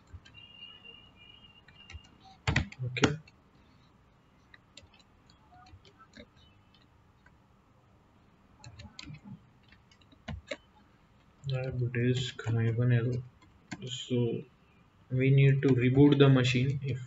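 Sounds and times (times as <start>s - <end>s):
computer keyboard clicks: 1.7s - 3.4s, 4.5s - 7.4s, 8.6s - 10.6s.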